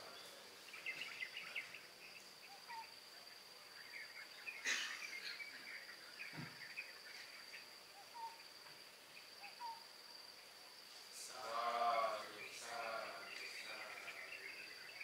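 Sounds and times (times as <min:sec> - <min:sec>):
faint chirps: 0:00.0 - 0:15.0.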